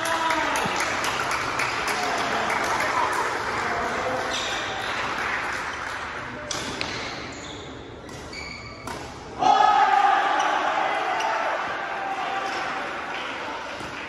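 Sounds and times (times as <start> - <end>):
sneakers squeaking on court: 6.6 - 9.1.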